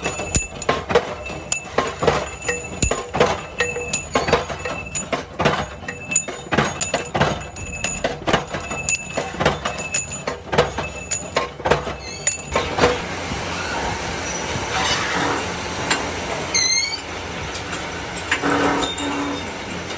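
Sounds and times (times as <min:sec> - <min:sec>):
metal rods clinking onto pile: 0:00.0 - 0:13.0.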